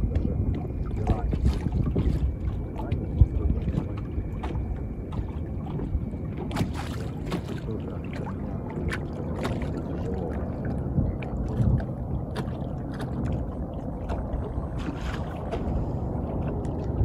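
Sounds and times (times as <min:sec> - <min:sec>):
boat engine low rumble: 0:00.0 - 0:17.0
water slapping against hull: 0:00.0 - 0:17.0.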